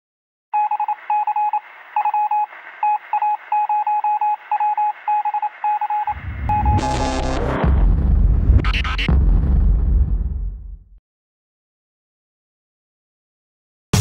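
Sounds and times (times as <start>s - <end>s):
morse code beeps over radio: 0.6s - 7.2s
deep bass swell: 6.1s - 10.9s.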